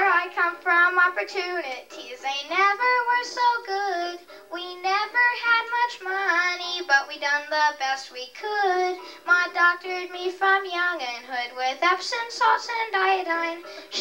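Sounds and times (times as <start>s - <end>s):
boy singing through microphone: 0.0s - 14.0s.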